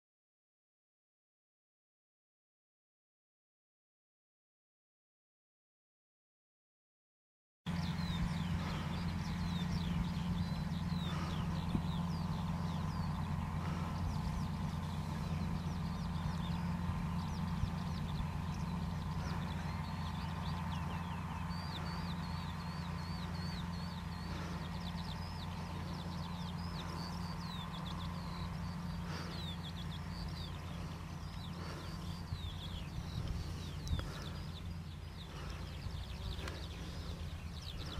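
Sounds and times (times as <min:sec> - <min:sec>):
birds chirping: 0:07.7 - 0:37.9
tractor diesel engine under load: 0:07.7 - 0:37.9.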